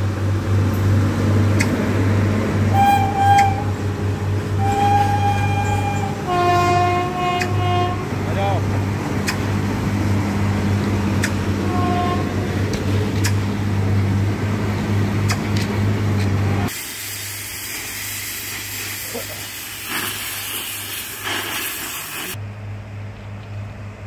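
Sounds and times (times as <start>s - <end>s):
sharp metallic clicks: 1.6s - 1.8s, 9.2s - 9.5s, 11.2s - 11.4s, 12.7s - 13.4s
gas cutting torch hissing: 16.7s - 22.4s.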